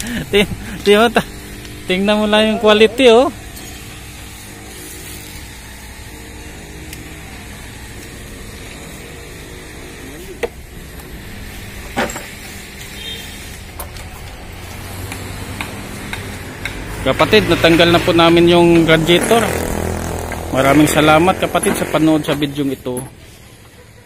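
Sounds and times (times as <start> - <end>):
engine humming: 6.6 - 23.8
sharp clicks: 15.0 - 16.9.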